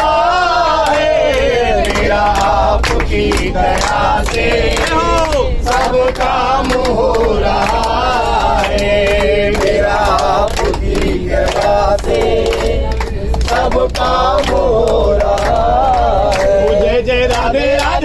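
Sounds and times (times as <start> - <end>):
group singing in unison: 0.0 - 18.0
rhythmic hand-clapping: 0.0 - 18.0.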